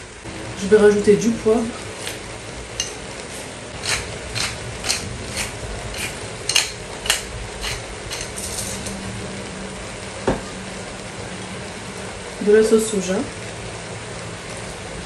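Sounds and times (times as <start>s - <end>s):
vegetables sizzling in a wok: 0.0s - 15.0s
pepper grinder ratcheting clicks: 3.8s - 8.8s.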